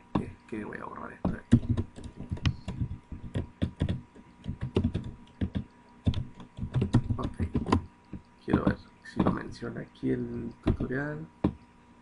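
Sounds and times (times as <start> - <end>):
keyboard keys clicking: 1.3 - 9.5.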